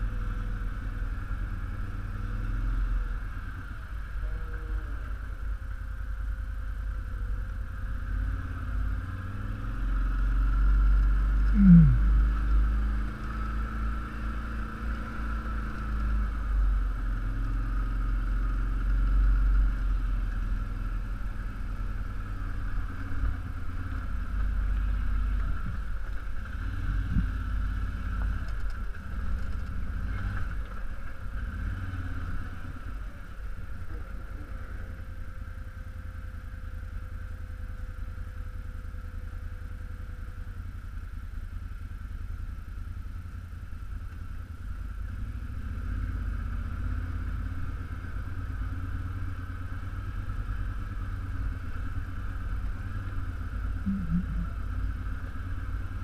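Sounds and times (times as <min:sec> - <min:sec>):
atv engine running: 0:00.0 - 0:56.0
downward-sliding tone: 0:53.9 - 0:54.6.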